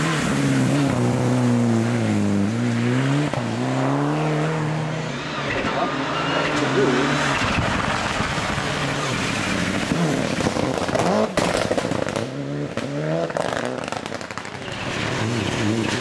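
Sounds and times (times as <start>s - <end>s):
rally car engine revving hard: 0.0s - 16.0s
exhaust cracks and pops: 10.2s - 15.1s.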